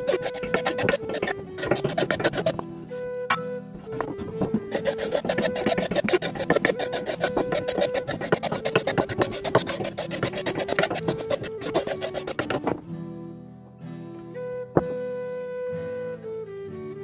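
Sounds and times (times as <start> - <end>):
knife scraping wood: 0.0 - 2.6, 3.8 - 12.8
soft background music: 0.0 - 17.0.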